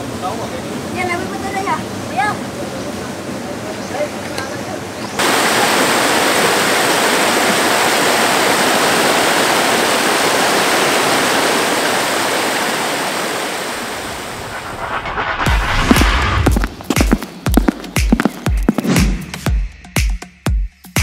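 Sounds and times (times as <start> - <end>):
water rushing over rocks: 5.2 - 14.4
sharp thumps: 14.3 - 19.3.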